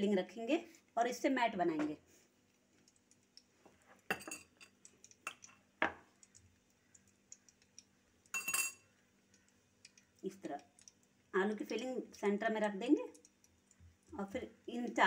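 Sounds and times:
spoon clinking on a bowl: 4.1 - 4.7, 8.3 - 8.9.

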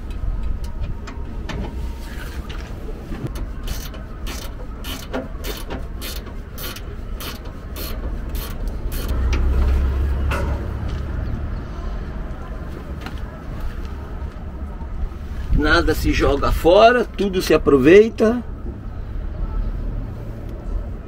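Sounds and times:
ratchet clicking: 3.3 - 9.2.

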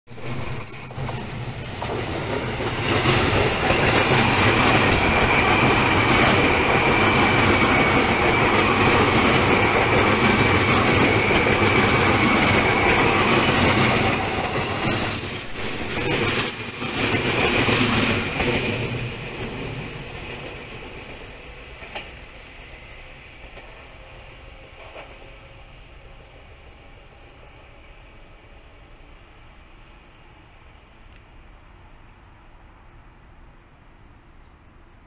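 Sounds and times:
high wheel squeal: 0.1 - 19.0
train wheels running on rails: 0.1 - 35.0.

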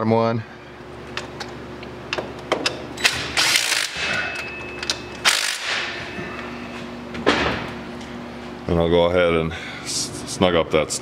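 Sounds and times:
ratchet wrench clicking: 3.0 - 4.1, 4.8 - 5.8.

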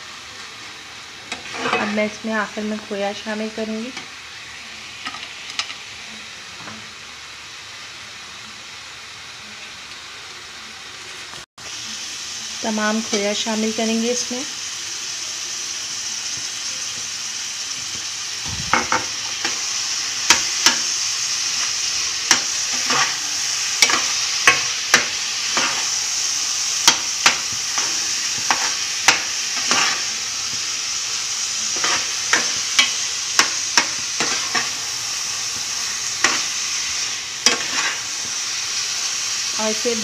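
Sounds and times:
food sizzling in a pan: 0.0 - 40.0
metal spoon scraping a pan: 1.3 - 2.2, 22.3 - 23.2, 23.8 - 26.0, 26.8 - 30.2, 31.6 - 34.8, 36.0 - 38.3.

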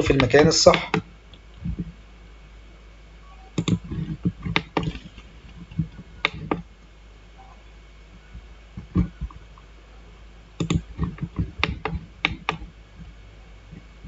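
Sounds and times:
computer mouse clicks: 3.6 - 6.6, 10.6 - 12.7.

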